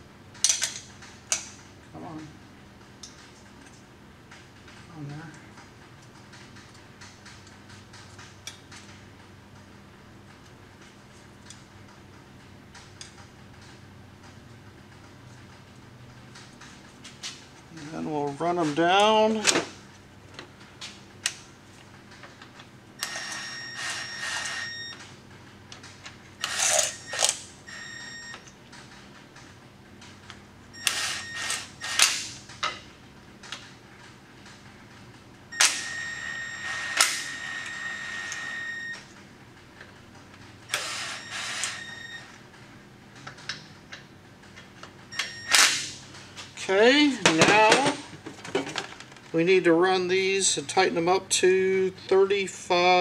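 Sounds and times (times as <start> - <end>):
power driver motor whine: 23.0 - 25.0, 30.8 - 32.2, 35.5 - 39.1, 40.7 - 42.4.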